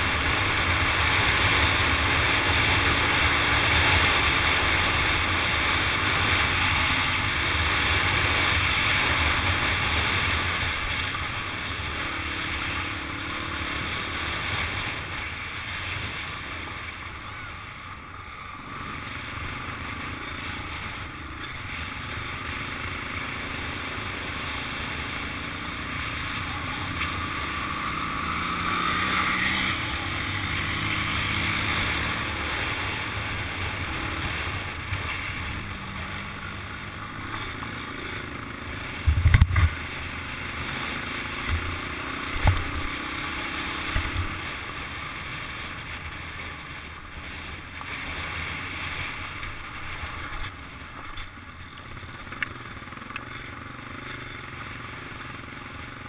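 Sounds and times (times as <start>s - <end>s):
dirt bike engine revving: 18.1s - 45.7s
wind noise on microphone: 39.0s - 39.8s.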